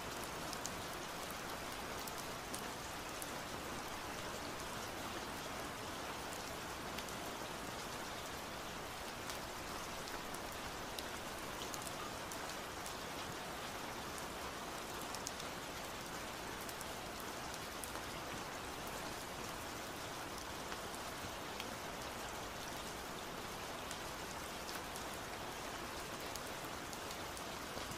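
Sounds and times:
rain drops ticking: 0:00.0 - 0:27.9
steady rain hiss: 0:00.0 - 0:27.9.

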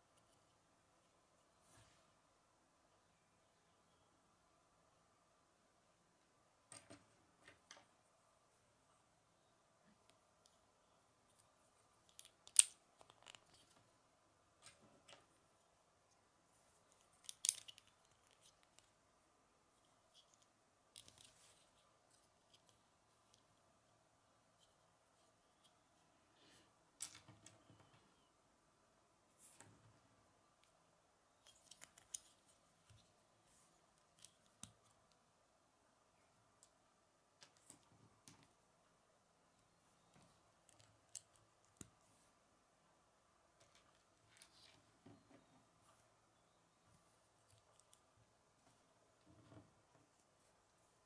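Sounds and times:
plastic pieces clicking together: 0:17.0 - 0:18.9.

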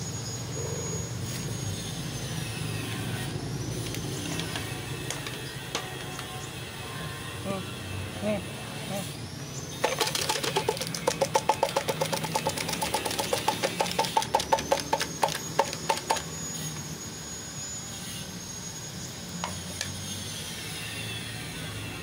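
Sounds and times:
metal tin knocking: 0:09.8 - 0:16.2.

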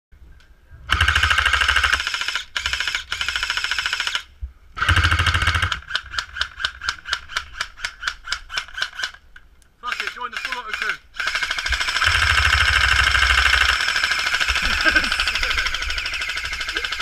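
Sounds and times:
airsoft gun firing: 0:10.0 - 0:17.0.

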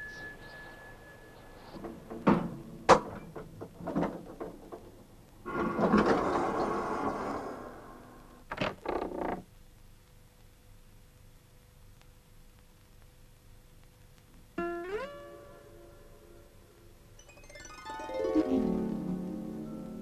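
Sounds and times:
wooden door creaking: 0:01.8 - 0:07.4, 0:08.4 - 0:09.5.

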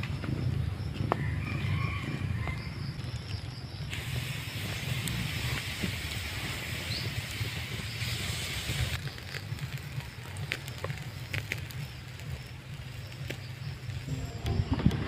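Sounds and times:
meat sizzling on a grill: 0:03.8 - 0:14.1
fat popping and crackling: 0:08.7 - 0:15.0.

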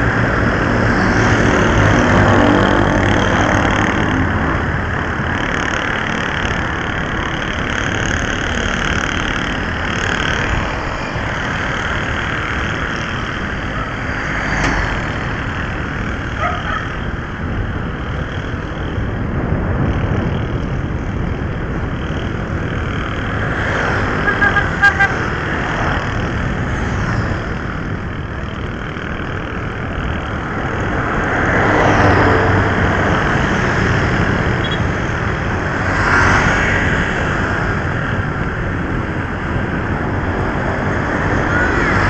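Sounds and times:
road and wind noise: 0:00.0 - 0:42.0
traffic engine hum: 0:00.0 - 0:42.0.

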